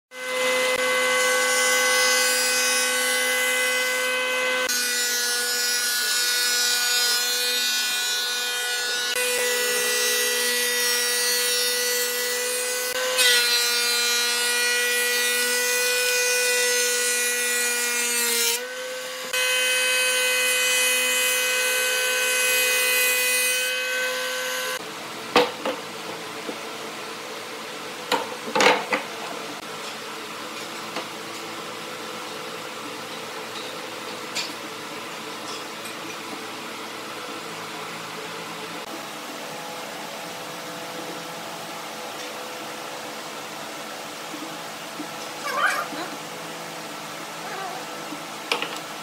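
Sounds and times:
thickness planer whining: 0:00.2 - 0:24.8.

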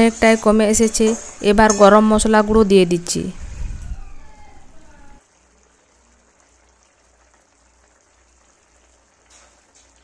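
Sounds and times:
spoon scraping pan: 0:00.0 - 0:02.3, 0:09.2 - 0:10.0
gravy simmering in a pan: 0:04.9 - 0:10.0.

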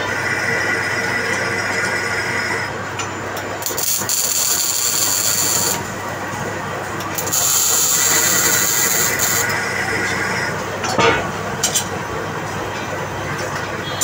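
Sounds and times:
metal lathe droning: 0:00.0 - 0:02.9, 0:03.7 - 0:10.8
lathe tool cutting metal: 0:03.6 - 0:06.1, 0:07.2 - 0:10.6.

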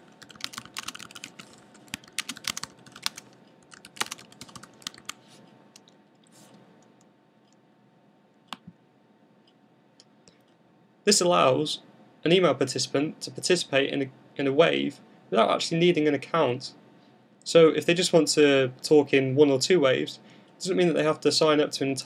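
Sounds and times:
keyboard typing: 0:00.1 - 0:05.2.

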